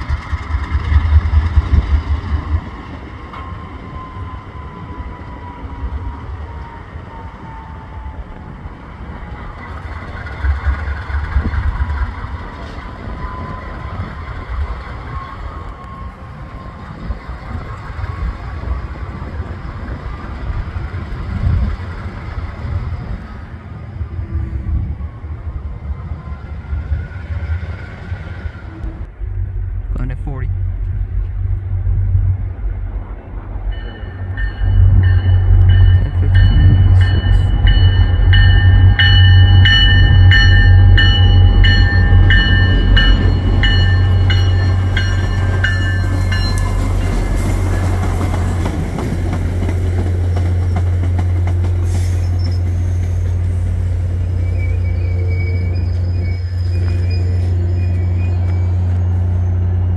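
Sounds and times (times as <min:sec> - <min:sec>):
diesel locomotive engine rumble: 0:00.0 - 0:59.9
train coaches rolling on rails: 0:00.0 - 0:59.9
locomotive bell ringing: 0:03.0 - 0:06.0, 0:33.6 - 0:49.2.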